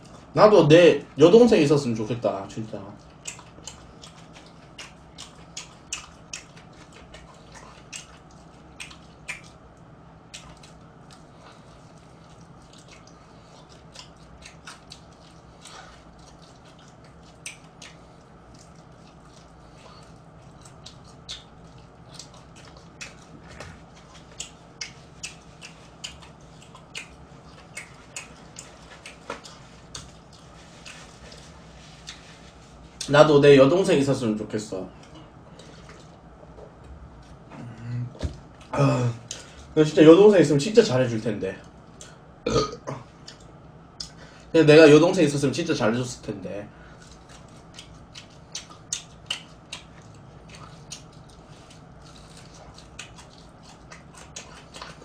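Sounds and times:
chewing crispy fried chicken: 0.0s - 33.2s, 46.7s - 55.0s
low steady hum: 0.0s - 55.0s.

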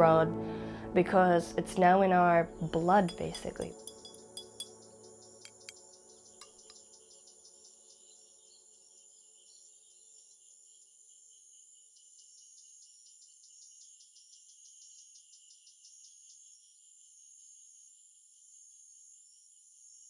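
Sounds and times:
high-pitched insect trilling: 2.7s - 5.8s.

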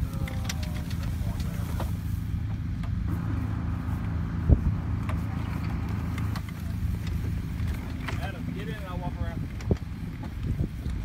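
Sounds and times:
vehicle engine idling: 0.0s - 11.0s.

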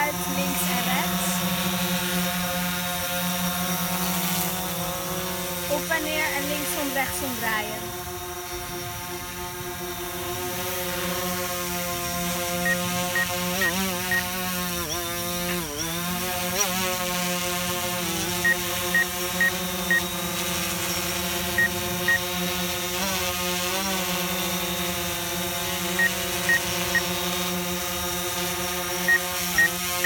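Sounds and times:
drone propellers buzzing: 0.0s - 30.0s.

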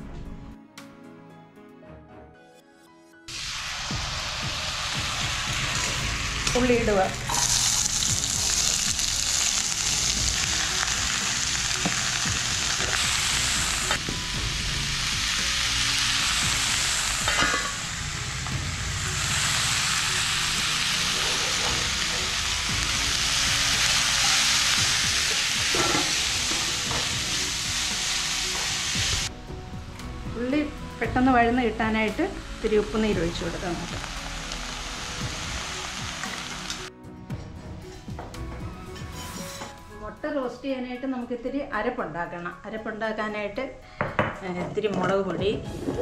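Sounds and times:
onions sizzling in hot oil: 3.3s - 29.3s, 31.2s - 36.9s.

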